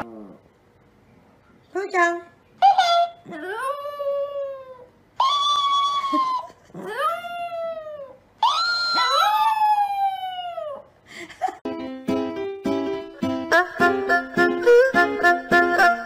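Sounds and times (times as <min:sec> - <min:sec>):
dog howling: 0:03.5 - 0:10.9.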